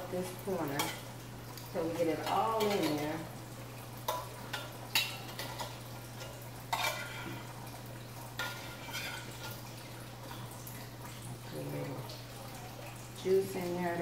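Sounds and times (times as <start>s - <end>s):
faint frying sizzle: 0.0s - 14.0s
metal utensil scraping a skillet: 4.1s - 7.5s, 8.4s - 9.6s.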